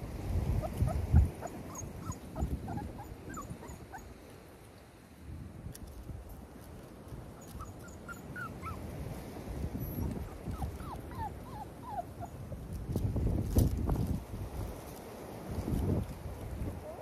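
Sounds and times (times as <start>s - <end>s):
wind rumble on microphone: 0.0s - 4.3s, 5.0s - 17.0s
puppies whimpering and yipping: 0.5s - 4.1s, 7.2s - 9.0s, 9.6s - 12.7s.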